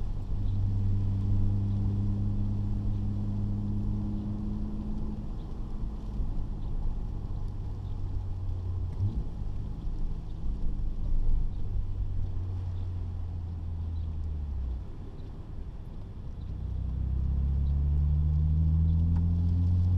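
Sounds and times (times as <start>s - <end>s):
car engine droning: 0.0s - 19.9s
road noise: 0.0s - 19.9s.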